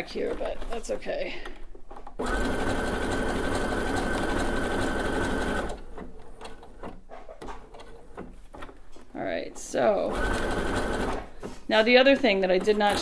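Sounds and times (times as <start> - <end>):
sewing machine running: 2.2 - 5.8, 10.1 - 11.3.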